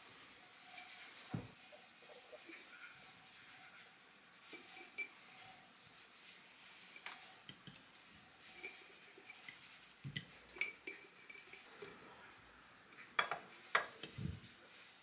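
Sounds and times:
dishes and utensils clinking: 0:00.6 - 0:05.7, 0:06.5 - 0:12.0, 0:13.0 - 0:14.3.

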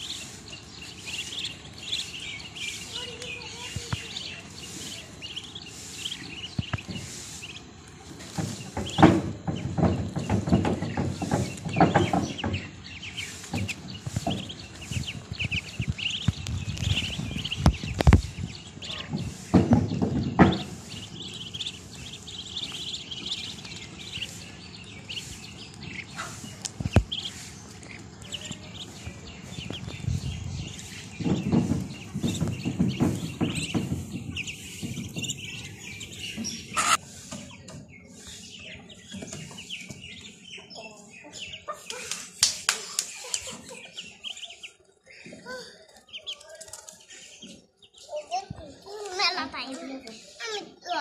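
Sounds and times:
low scuffling noise: 0:00.0 - 0:40.7
ducklings peeping: 0:00.0 - 0:51.0.

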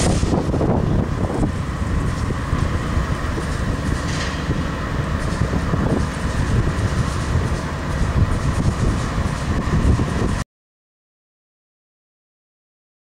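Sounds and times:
diesel engine low rumble: 0:00.0 - 0:10.4
locomotive whine: 0:00.0 - 0:10.4.

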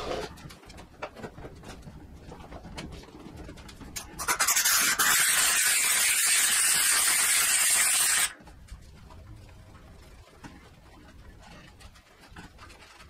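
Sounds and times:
steam cleaner hissing: 0:04.2 - 0:08.4
faint handling noises: 0:08.4 - 0:13.0.

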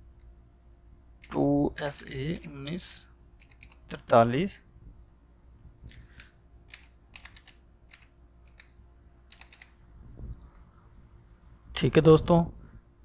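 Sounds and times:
computer keyboard typing: 0:03.4 - 0:04.0, 0:05.9 - 0:09.8.

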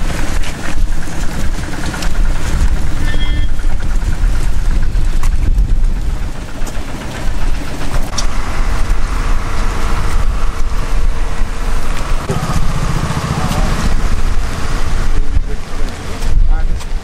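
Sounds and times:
wind buffeting microphone: 0:00.0 - 0:17.0
indistinct voices: 0:08.2 - 0:17.0.

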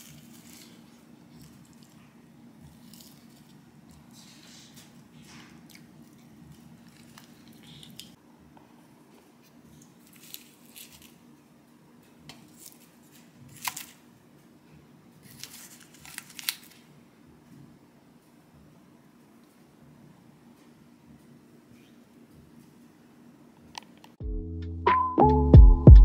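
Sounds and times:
foil cups crinkling and clicking: 0:00.0 - 0:08.2, 0:09.8 - 0:11.2, 0:12.3 - 0:14.0, 0:15.2 - 0:16.9
low room hum: 0:00.0 - 0:24.2.

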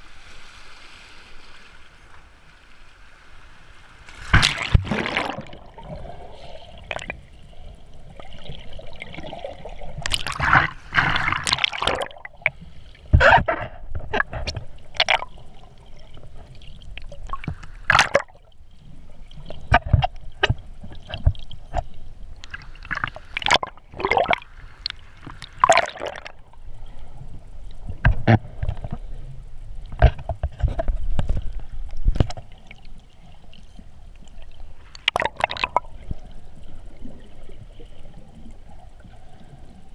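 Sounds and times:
muffled underwater wash: 0:00.0 - 0:39.9
sharp underwater clicks: 0:10.0 - 0:12.6, 0:34.8 - 0:35.9.

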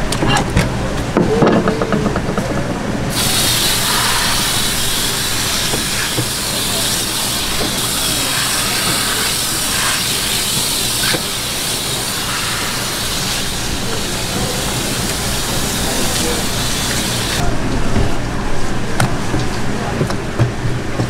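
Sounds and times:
water spraying from hose: 0:03.1 - 0:17.4.

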